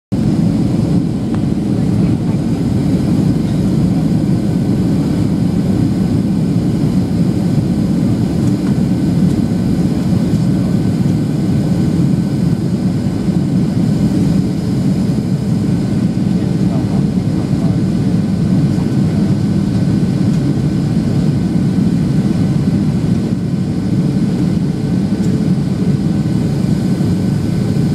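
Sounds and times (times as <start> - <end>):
airplane cabin engine roar: 0.1 - 27.9.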